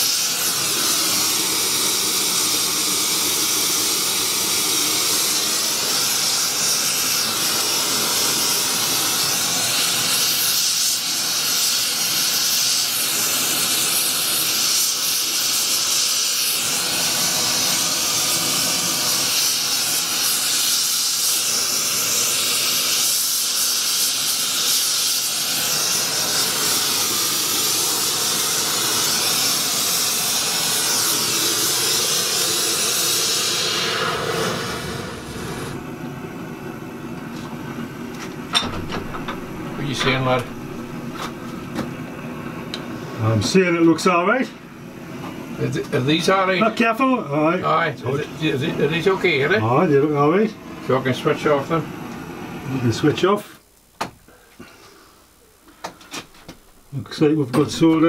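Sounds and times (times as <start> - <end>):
gas torch hissing: 0.0 - 58.0.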